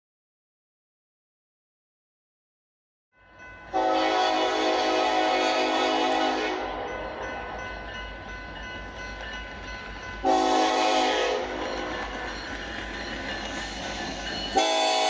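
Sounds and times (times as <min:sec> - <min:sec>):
train rumble: 0:03.3 - 0:15.0
locomotive air horn: 0:03.7 - 0:06.7, 0:10.2 - 0:11.6, 0:14.6 - 0:15.0.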